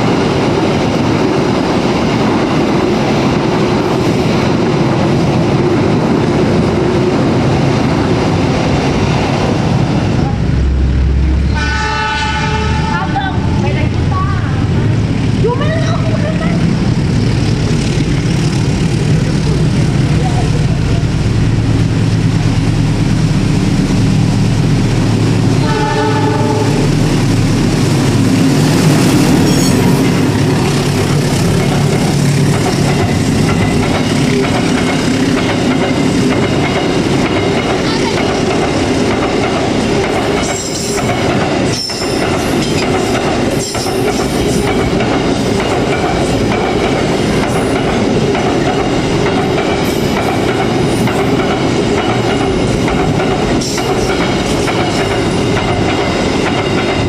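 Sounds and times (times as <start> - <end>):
diesel locomotive engine: 0.0 - 57.0
train horn blast: 11.5 - 13.2, 25.6 - 27.0.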